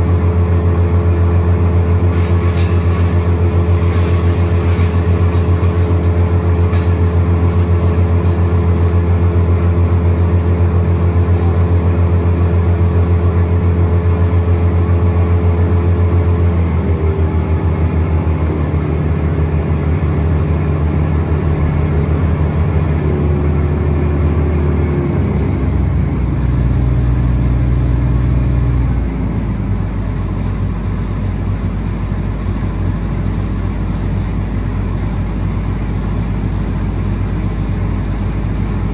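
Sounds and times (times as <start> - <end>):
wood chipper engine running: 0.0 - 38.9.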